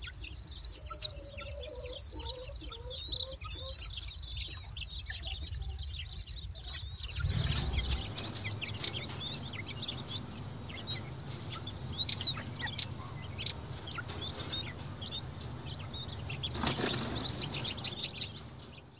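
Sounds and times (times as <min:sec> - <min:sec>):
chicks peeping: 0:00.0 - 0:18.9
low steady hum: 0:06.8 - 0:18.9.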